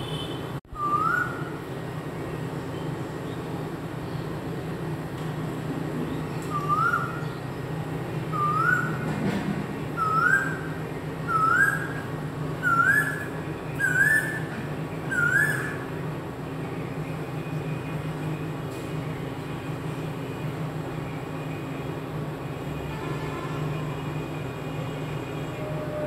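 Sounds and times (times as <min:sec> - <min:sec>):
koel whistled calls: 0:00.8 - 0:01.5, 0:06.4 - 0:07.4, 0:08.3 - 0:09.0, 0:10.0 - 0:10.7, 0:11.3 - 0:15.9.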